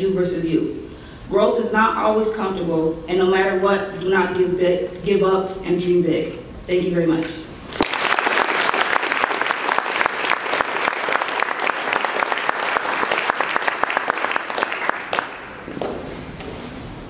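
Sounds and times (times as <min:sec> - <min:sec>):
audience applauding: 0:07.7 - 0:15.8.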